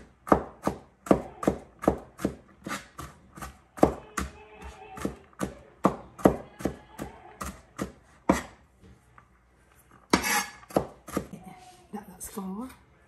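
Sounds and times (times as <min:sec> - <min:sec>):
knife chopping on cutting board: 0:00.0 - 0:08.6, 0:10.1 - 0:11.3.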